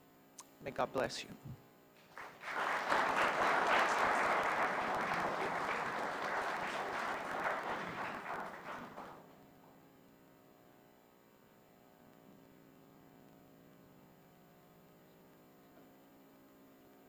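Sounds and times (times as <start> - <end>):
audience applauding: 2.0 - 9.4.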